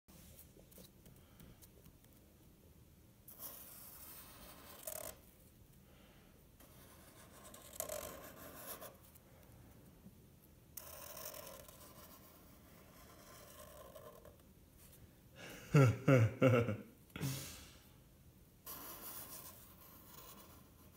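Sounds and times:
marker scratching across paper: 3.3 - 5.2, 6.6 - 9.1, 10.8 - 14.4, 18.6 - 20.9.

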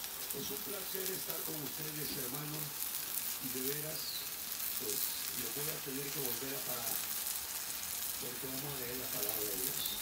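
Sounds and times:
food sizzling on a griddle: 0.0 - 10.0.

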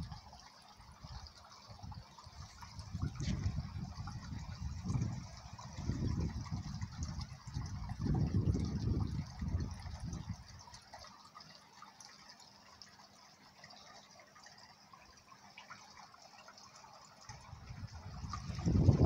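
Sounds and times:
water trickling and dripping: 0.0 - 19.0
wind rumble on microphone: 1.0 - 10.8, 17.3 - 19.0.

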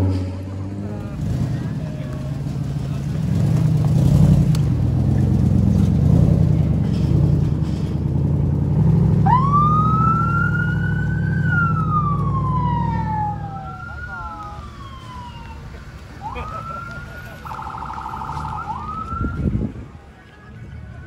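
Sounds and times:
engine with deep exhaust note: 0.0 - 19.9
electronic siren wailing: 9.2 - 15.6, 16.2 - 19.5.

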